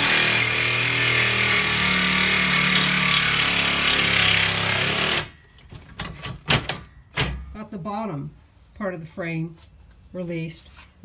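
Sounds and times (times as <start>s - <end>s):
reciprocating saw cutting metal: 0.0s - 5.3s.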